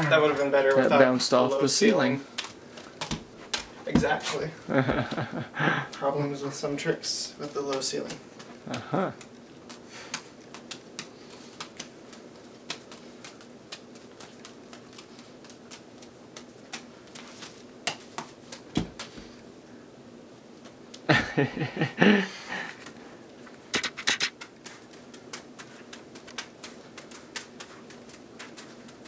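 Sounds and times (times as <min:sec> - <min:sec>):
juggling balls slapping into hands: 0:00.0 - 0:06.1, 0:07.4 - 0:19.4, 0:23.8 - 0:29.0.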